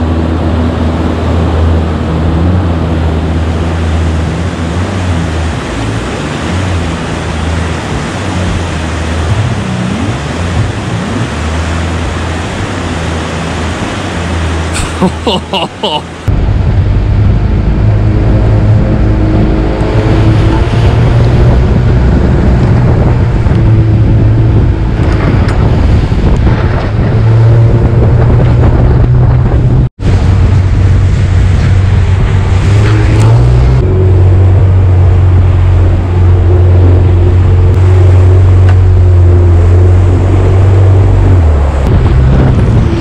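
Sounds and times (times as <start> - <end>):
boat engine drone: 0.0 - 43.0
rushing water: 0.0 - 43.0
wind on microphone: 16.1 - 43.0.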